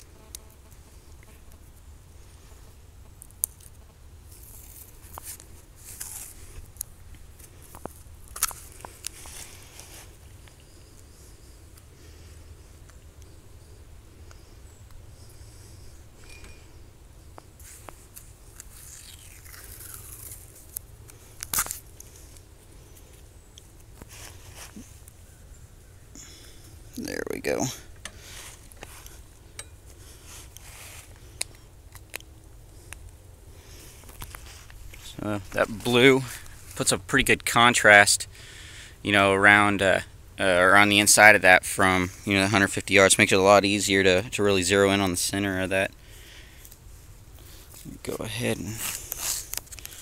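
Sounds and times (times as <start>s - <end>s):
tape crackling while handled: 3.1s - 12.0s, 17.3s - 25.5s, 26.2s - 37.5s, 46.6s - 50.0s
tape peeling: 3.2s - 11.0s, 17.6s - 25.2s, 48.8s - 50.0s
tape ripping: 3.4s - 6.4s, 17.6s - 22.2s
footsteps in dry leaves: 4.3s - 6.7s, 7.4s - 10.4s, 24.0s - 25.0s, 28.2s - 29.3s, 30.0s - 31.4s, 48.6s - 50.0s.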